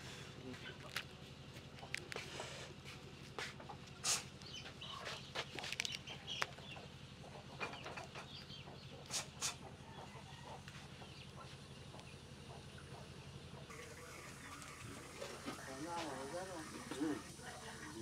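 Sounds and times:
onion skin crackling: 5.5s - 6.5s.

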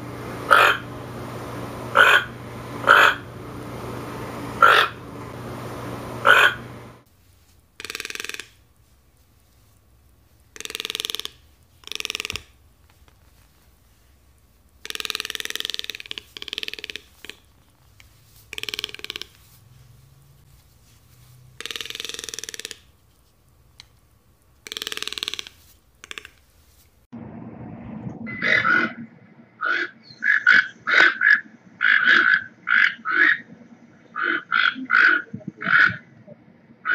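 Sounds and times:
toucan croaking calls: 0.5s - 0.9s, 1.9s - 3.3s, 4.6s - 5.0s, 6.2s - 6.7s, 7.8s - 8.8s, 10.4s - 12.6s, 14.7s - 20.0s, 21.6s - 23.0s, 24.6s - 26.5s, 28.3s - 29.0s, 29.6s - 36.2s.

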